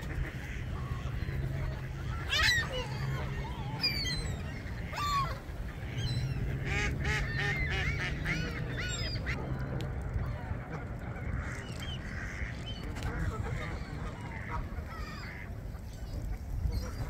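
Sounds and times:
geese honking: 0.0 - 17.0
steady low rumble: 0.0 - 17.0.

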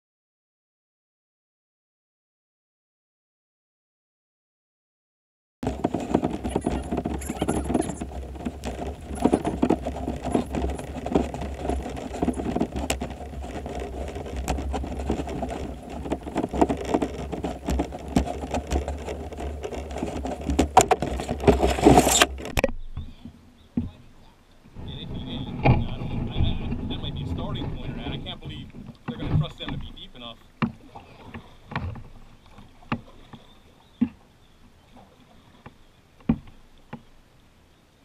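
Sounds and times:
kayak scraping over pavement and gravel: 5.6 - 37.2.

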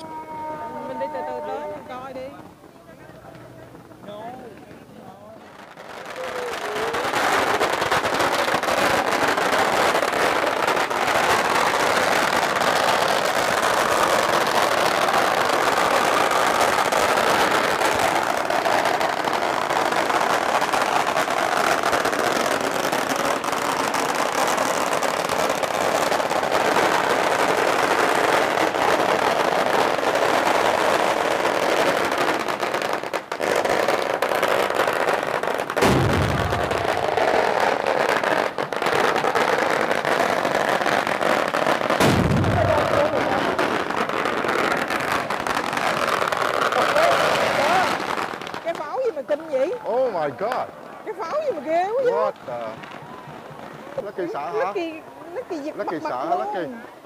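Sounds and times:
firecrackers crackling: 0.0 - 57.0
deep booms: 35.8 - 37.4, 42.0 - 43.4.

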